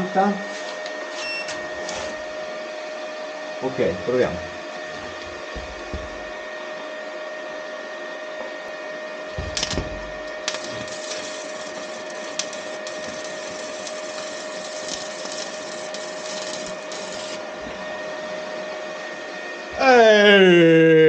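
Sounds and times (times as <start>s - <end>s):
steady high whine: 0.0s - 21.0s
welding arc crackling and hissing: 9.4s - 17.8s.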